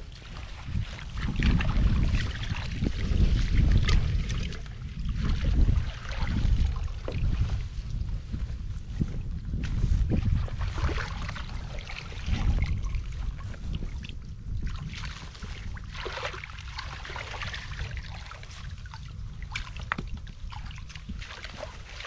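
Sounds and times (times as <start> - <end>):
water splashes and drips: 0.0 - 8.6, 9.6 - 22.0
low rumble: 0.0 - 16.0
shallow water sloshing and trickling: 0.0 - 22.0.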